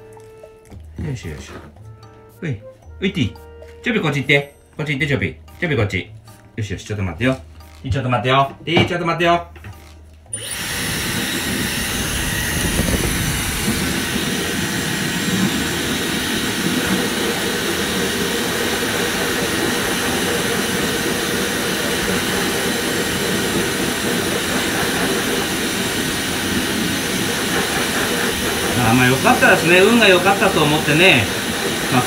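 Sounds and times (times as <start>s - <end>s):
hair dryer blowing: 10.3s - 32.0s.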